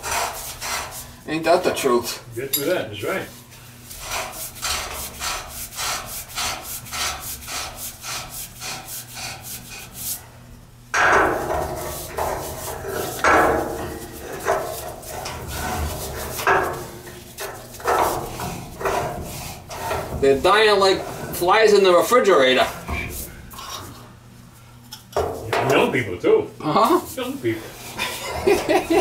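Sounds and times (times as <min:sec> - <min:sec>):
pipe creaking and scraping: 0:03.9 - 0:10.0, 0:11.0 - 0:24.1
metal pipe threads scraping: 0:03.9 - 0:10.1, 0:11.0 - 0:24.0.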